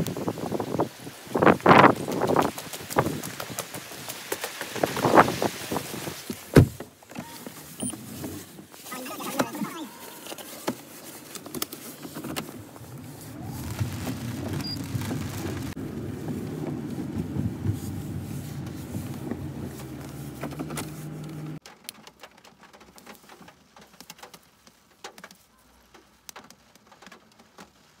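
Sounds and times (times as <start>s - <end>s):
car engine hum from cabin: 12.8s - 21.6s.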